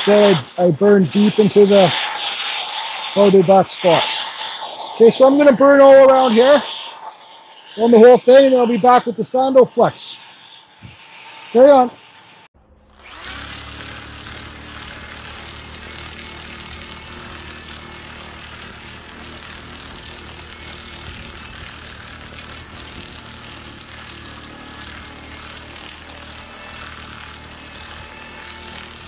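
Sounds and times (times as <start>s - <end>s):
power tool sanding wood: 0.0s - 6.8s, 12.6s - 29.0s.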